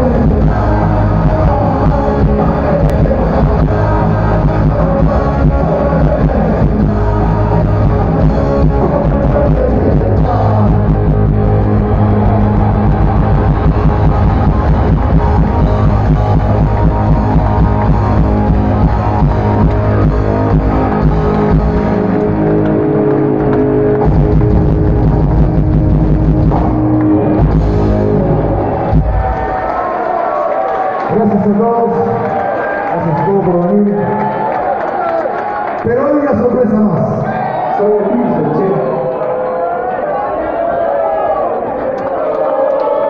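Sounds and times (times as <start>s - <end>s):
live rock band with electric guitars: 0.0s - 33.0s.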